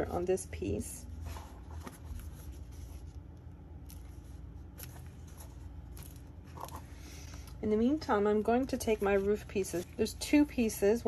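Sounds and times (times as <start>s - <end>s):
low steady hum: 0.0s - 11.0s
paper rustling: 1.2s - 7.6s.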